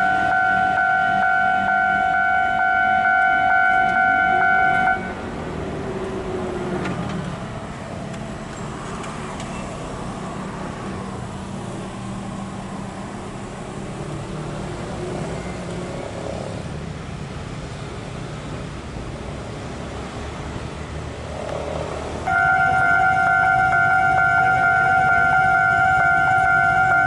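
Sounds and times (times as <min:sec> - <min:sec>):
low rumble of vehicles: 0:00.0 - 0:27.0
level-crossing warning bell: 0:22.3 - 0:27.0.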